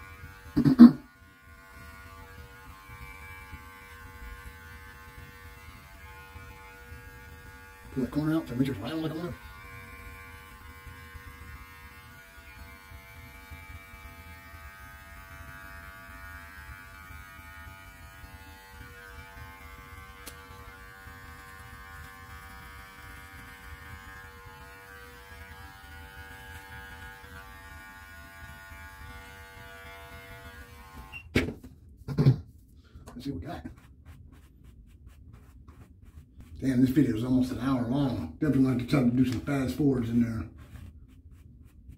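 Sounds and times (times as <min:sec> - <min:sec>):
electric clippers buzzing: 0:00.0 - 0:31.5.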